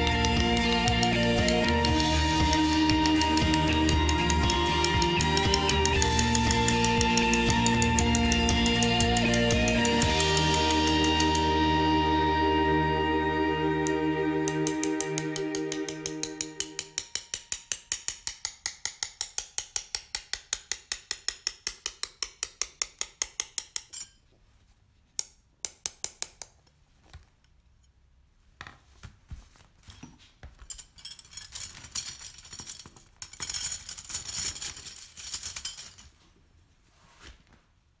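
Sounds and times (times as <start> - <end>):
glass strips clinking and scraping: 0.0 - 11.5, 23.7 - 24.2, 30.6 - 36.2.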